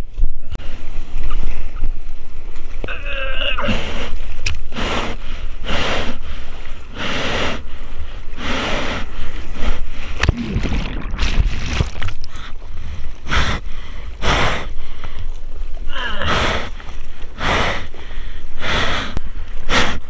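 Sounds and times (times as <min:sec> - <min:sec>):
water and wind rumble: 0:00.0 - 0:20.0
seawater splashing: 0:04.1 - 0:20.0.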